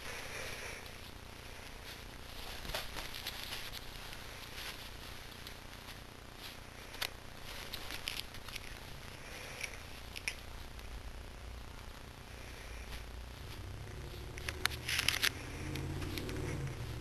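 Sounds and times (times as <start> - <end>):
bedding rustling: 0.0 - 10.8.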